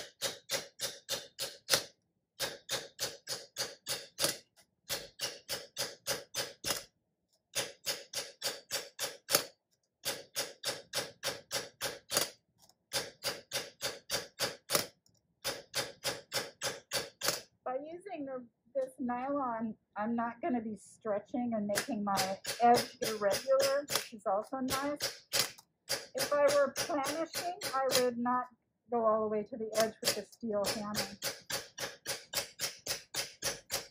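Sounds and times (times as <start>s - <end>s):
mallet tapping copper disc: 21.8s - 24.1s, 29.9s - 33.9s.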